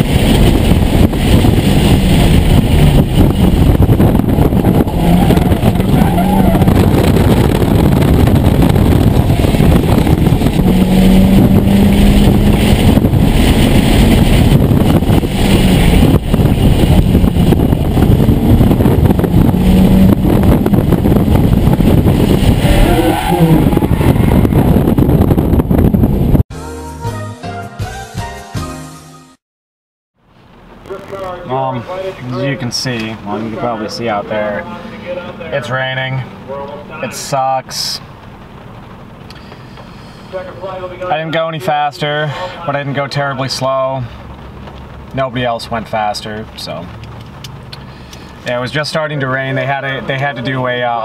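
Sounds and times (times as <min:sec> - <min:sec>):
car engine revving: 0:00.0 - 0:26.0
tyre and road noise: 0:00.0 - 0:26.4, 0:30.2 - 0:51.0
music: 0:26.5 - 0:29.4.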